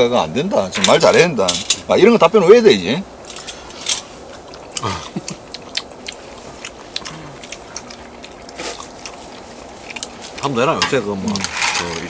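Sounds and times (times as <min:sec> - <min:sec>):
people chewing: 0:03.2 - 0:12.0.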